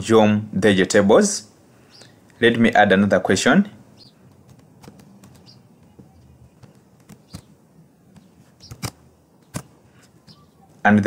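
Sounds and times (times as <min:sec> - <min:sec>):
mouse and keyboard clicks: 0:04.3 - 0:07.5, 0:08.1 - 0:09.7.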